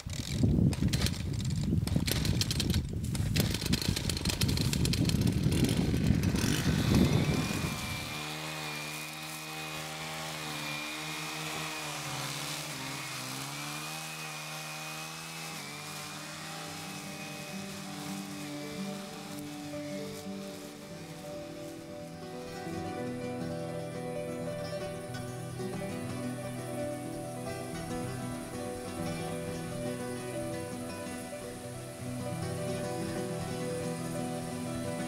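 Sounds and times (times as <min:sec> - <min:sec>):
motor-driven machine running: 0:03.4 - 0:20.7
background music with held notes: 0:06.4 - 0:35.0.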